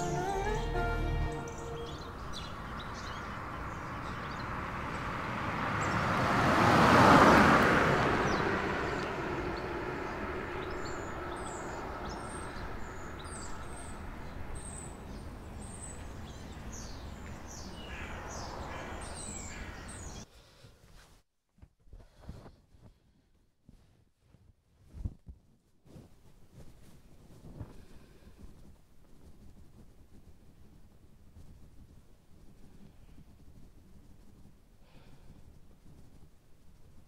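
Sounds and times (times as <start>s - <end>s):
vehicle passing: 0.0s - 16.2s
small birds chirping: 1.3s - 5.1s, 8.3s - 20.3s.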